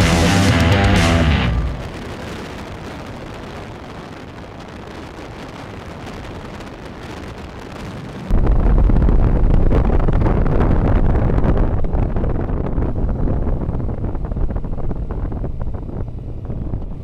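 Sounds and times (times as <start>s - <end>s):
music: 0.0s - 1.9s
wind rushing on microphone: 1.5s - 17.0s.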